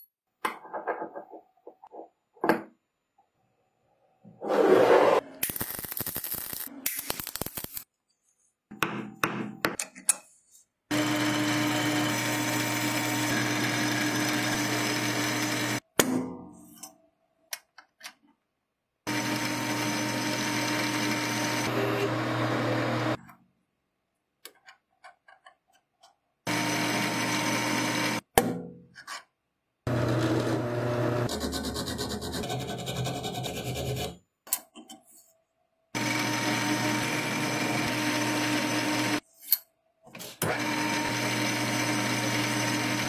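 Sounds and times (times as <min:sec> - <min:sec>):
welding arc crackling: 0:05.4 - 0:07.9
metal lathe running: 0:19.1 - 0:23.2, 0:36.0 - 0:39.2.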